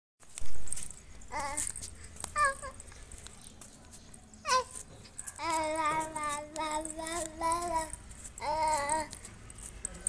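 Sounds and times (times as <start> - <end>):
child babbling sing-song: 1.3 - 2.8, 4.4 - 9.3
child calling out: 2.4 - 2.8.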